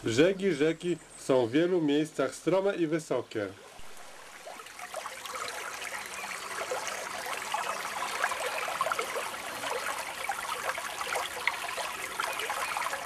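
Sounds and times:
river babbling over branches: 3.5s - 13.0s.

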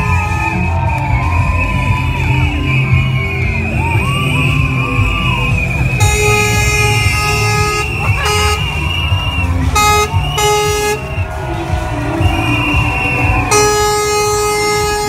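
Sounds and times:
truck air horn: 0.0s - 0.8s, 6.0s - 9.0s, 9.6s - 11.2s, 12.7s - 15.0s
loud music with steady beat: 0.0s - 15.0s.

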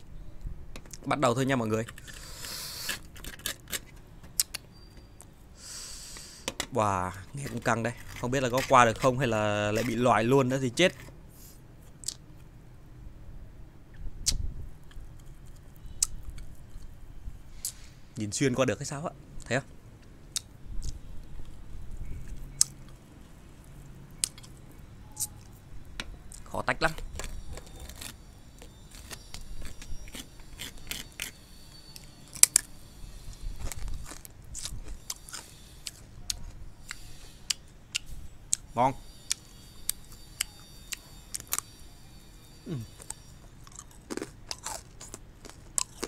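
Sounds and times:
needle scratching sugar candy: 1.4s - 4.0s, 7.0s - 11.6s, 26.9s - 37.7s.

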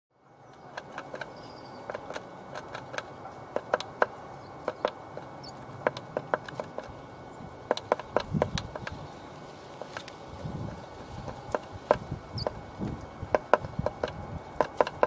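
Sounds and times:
faint high bird calls: 0.4s - 2.1s
beak tapping and claws scratching wood: 0.5s - 7.0s, 7.6s - 15.0s.

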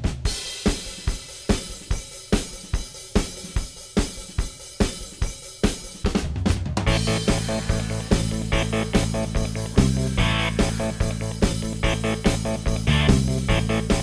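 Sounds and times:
rock drum beat: 0.0s - 14.0s
sustained low notes: 6.9s - 14.0s.

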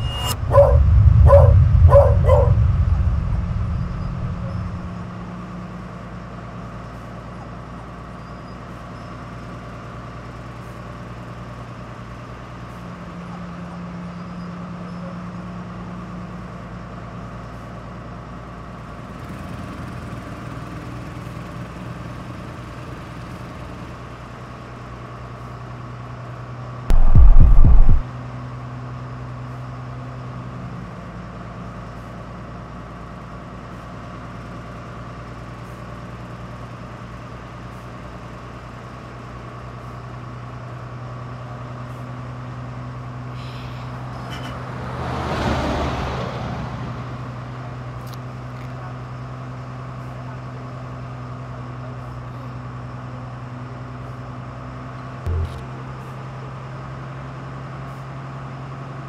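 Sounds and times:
loud low thump: 0.0s - 5.1s, 26.9s - 28.0s, 55.3s - 55.6s
whoosh: 0.0s - 5.2s, 26.9s - 28.0s, 55.3s - 55.6s
bus engine humming: 0.0s - 5.7s, 55.3s - 55.9s.

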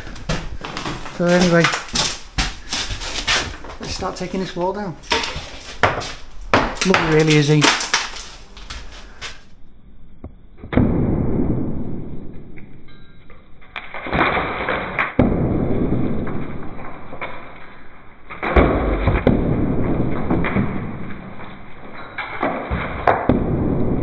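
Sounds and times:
rubble falling and clattering: 0.0s - 9.6s, 16.2s - 24.0s
hammer knocking brickwork: 5.1s - 7.8s.

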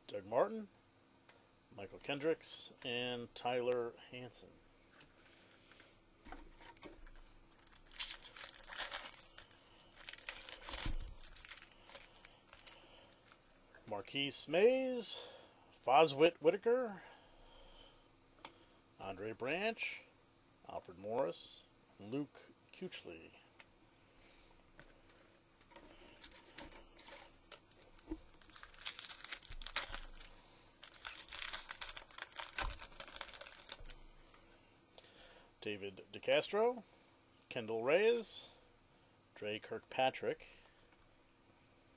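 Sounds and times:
foil wrapper tearing and crinkling: 7.5s - 13.4s, 26.2s - 34.0s.

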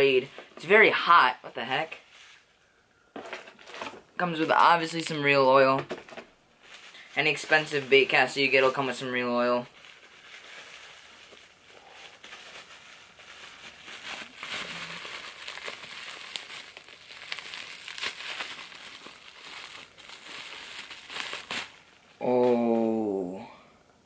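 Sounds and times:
bubble wrap crinkling: 1.9s - 2.6s, 6.6s - 22.9s.

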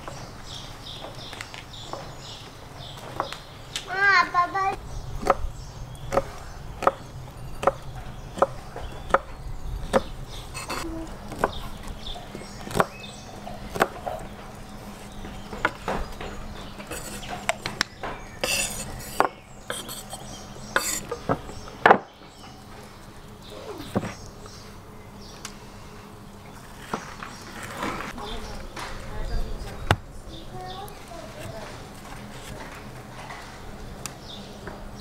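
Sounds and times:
knife slicing on wooden board: 10.6s - 10.8s, 16.9s - 17.8s, 18.4s - 21.2s.

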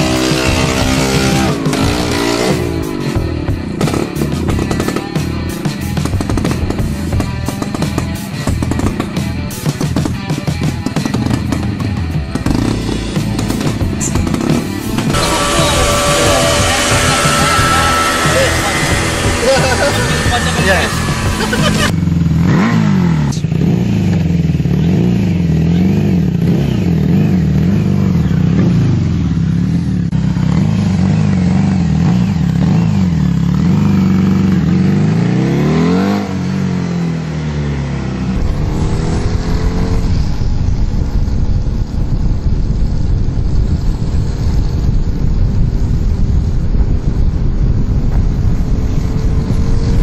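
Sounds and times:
scooter engine revving: 0.0s - 42.5s
rushing noise: 12.6s - 21.9s, 38.1s - 50.0s.

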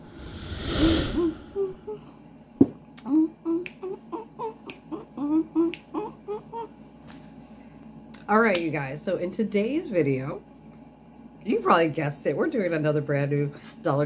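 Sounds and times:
whoosh: 0.0s - 1.8s
finger snaps: 3.0s - 3.9s, 4.6s - 4.9s, 5.6s - 6.0s.

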